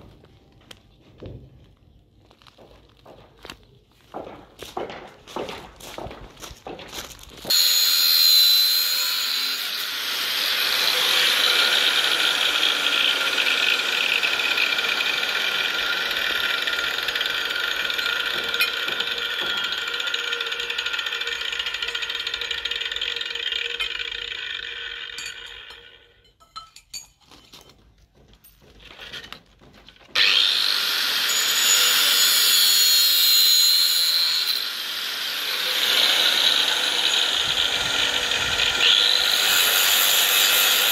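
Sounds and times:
angle grinder cutting steel: 0:07.4 - 0:26.3, 0:30.2 - 0:40.9.

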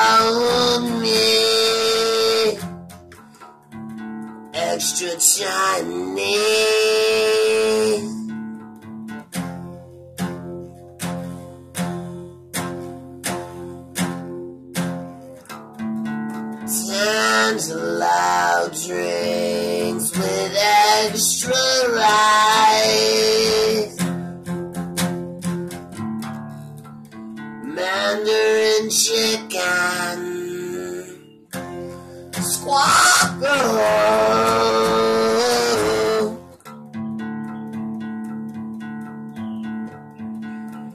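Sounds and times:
man singing: 0:00.0 - 0:02.9, 0:04.5 - 0:08.4, 0:16.6 - 0:24.3, 0:27.6 - 0:36.6
strummed acoustic guitar: 0:00.0 - 0:40.9.

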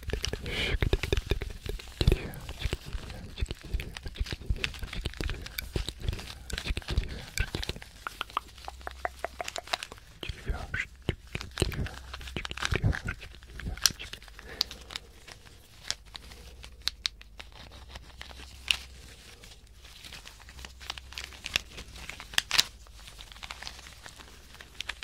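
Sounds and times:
wooden blocks clicking and knocking: 0:00.0 - 0:10.0.

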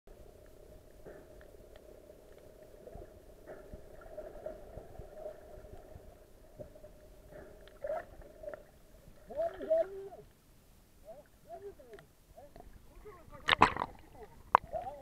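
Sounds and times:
faint underwater hum: 0:00.1 - 0:15.0.

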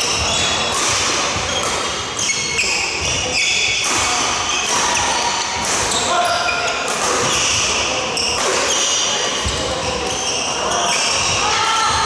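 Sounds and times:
shoes squeaking on wooden floor: 0:00.0 - 0:00.7, 0:01.4 - 0:03.8
rackets hitting shuttlecock: 0:00.0 - 0:09.8.

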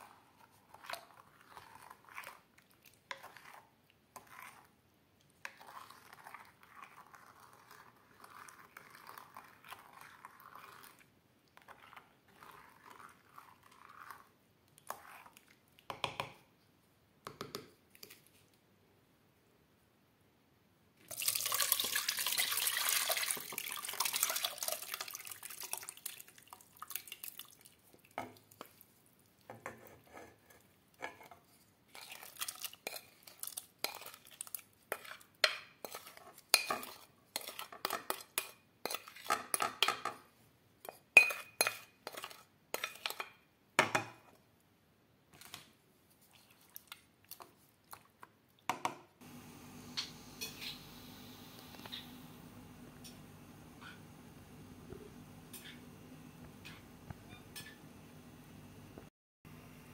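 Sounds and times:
utensil scraping and knocking bowl: 0:00.0 - 0:04.7, 0:29.5 - 0:40.2, 0:40.8 - 0:43.4
liquid splashing into pot: 0:21.1 - 0:28.6.

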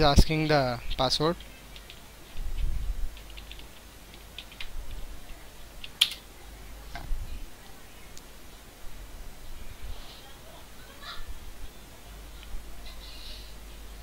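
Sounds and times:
keyboard typing: 0:00.9 - 0:06.2.

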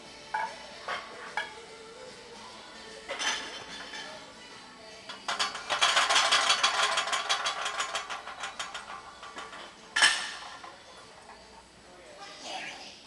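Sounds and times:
metallic clicking rattle: 0:05.1 - 0:11.4.

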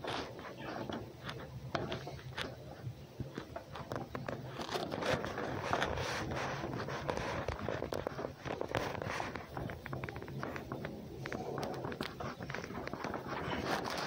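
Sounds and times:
animal scratching and tapping on boards: 0:00.0 - 0:14.0.

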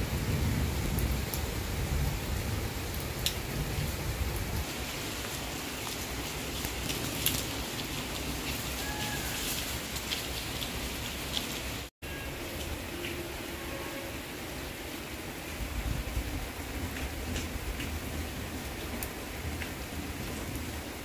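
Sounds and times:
low thunder rumble: 0:00.0 - 0:04.7
steady rain: 0:00.0 - 0:21.0
sharp raindrops landing close: 0:00.9 - 0:11.9, 0:16.8 - 0:21.0.

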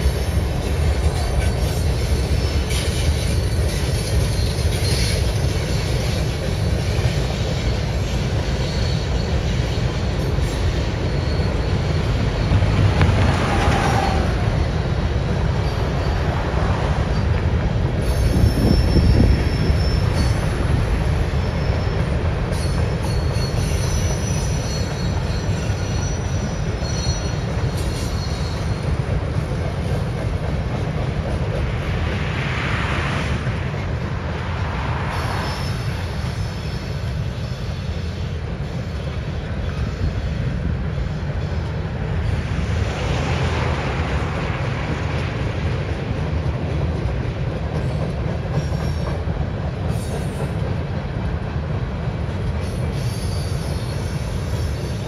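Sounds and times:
high wheel squeal: 0:00.0 - 0:29.0, 0:34.7 - 0:40.4, 0:52.6 - 0:55.0
train wheels rumbling on rail: 0:00.0 - 0:55.0.

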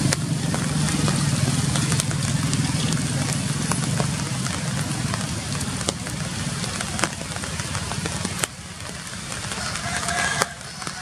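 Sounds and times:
rain falling on leaves: 0:00.0 - 0:11.0.

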